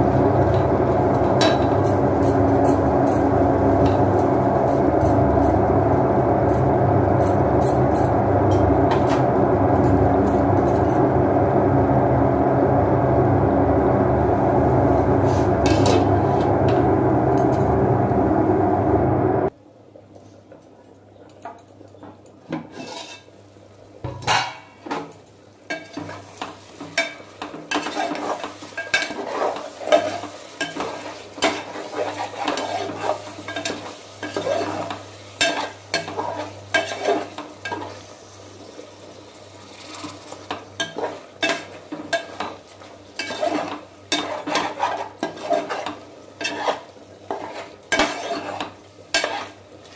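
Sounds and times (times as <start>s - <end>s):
low steady hum: 0.0s - 20.0s
loud steady rushing noise: 7.9s - 19.5s
metal spoon scraping a pot: 22.7s - 23.3s, 27.0s - 37.9s, 43.2s - 49.6s.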